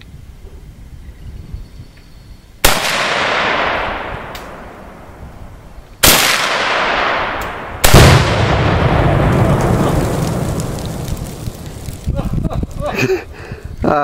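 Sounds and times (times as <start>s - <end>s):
rifle shots with rolling echo: 2.6s - 5.2s, 6.0s - 11.7s
explosive target bang with rumble: 6.2s - 10.9s.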